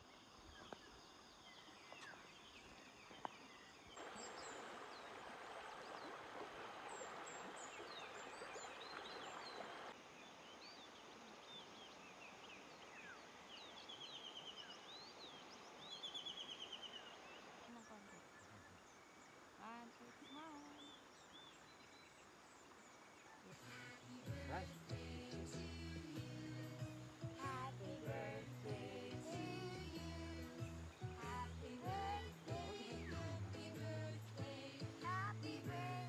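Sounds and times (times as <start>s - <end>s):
shallow river over stones: 0.0s - 25.4s
birds chirping: 26.2s - 35.6s.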